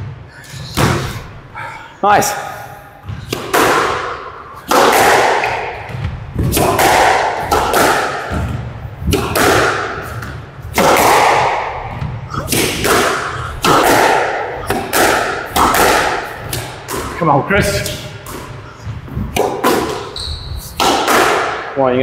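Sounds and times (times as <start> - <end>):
squash ball cracks: 3.2 - 17.2, 19.3 - 20.1, 20.8 - 21.7.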